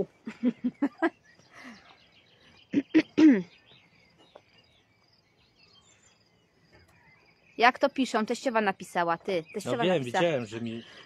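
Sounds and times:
faint bird chirps: 0:00.0 - 0:11.0
person's voice: 0:09.5 - 0:10.9.

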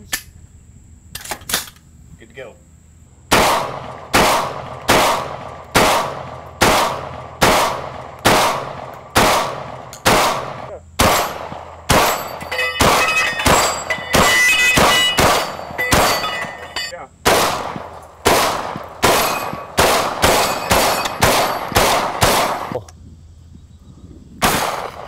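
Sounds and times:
shotgun shots: 0:03.3 - 0:22.8, 0:24.4 - 0:25.0
steel plate targets ringing: 0:11.0 - 0:17.0, 0:19.0 - 0:22.3.

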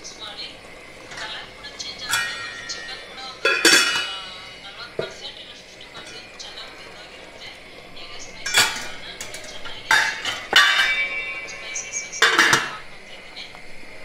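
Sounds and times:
metal lid clanking on pot: 0:01.0 - 0:05.3, 0:05.9 - 0:07.0, 0:08.2 - 0:13.1.

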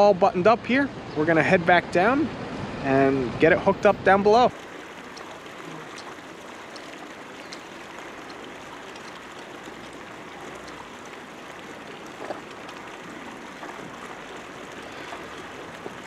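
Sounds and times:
marina background noise: 0:00.0 - 0:16.0
faint clicks: 0:05.1 - 0:10.0, 0:10.6 - 0:10.8.

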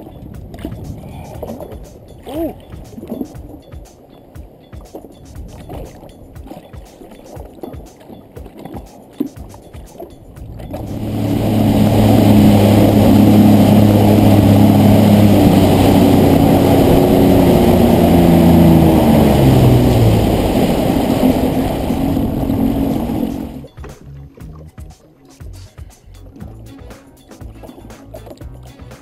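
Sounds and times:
water rushing against hull: 0:00.0 - 0:24.6
jet ski engine running hard: 0:10.6 - 0:23.7.

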